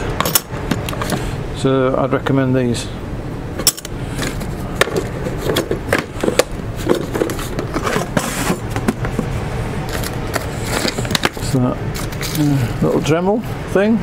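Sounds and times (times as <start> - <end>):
metal parts clinking in tub: 0.2 - 0.5, 3.6 - 4.4
tools clicking and knocking: 0.2 - 1.2, 3.6 - 8.2.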